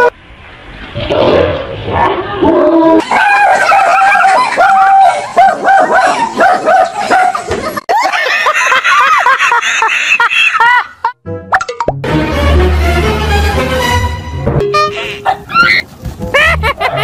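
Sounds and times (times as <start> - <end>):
people laughing loudly: 3.0 - 5.3, 6.0 - 11.2, 16.2 - 17.0
dog barking rapidly: 3.0 - 7.4, 15.2 - 15.8.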